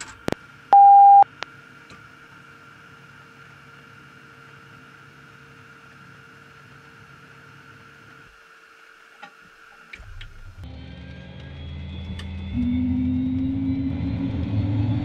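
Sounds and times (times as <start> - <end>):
electrical hum with faint tones: 0.0 - 1.5
deeper hum: 0.7 - 1.2, 10.2 - 15.0.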